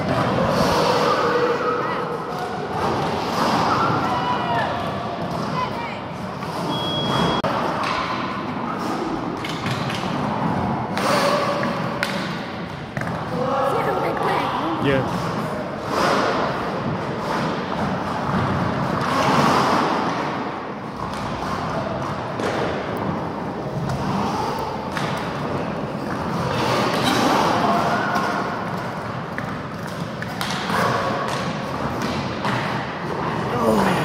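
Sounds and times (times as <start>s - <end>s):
skate wheels rolling: 15.0s - 34.0s.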